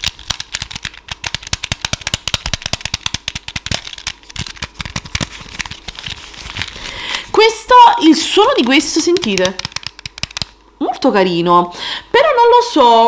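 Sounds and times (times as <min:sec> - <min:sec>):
plastic puzzle tiles clicking: 0:00.0 - 0:06.7, 0:08.6 - 0:10.6.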